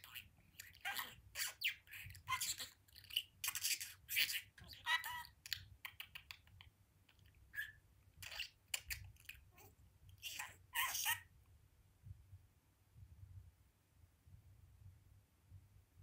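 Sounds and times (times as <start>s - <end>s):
budgerigar chattering: 0.0s - 11.3s.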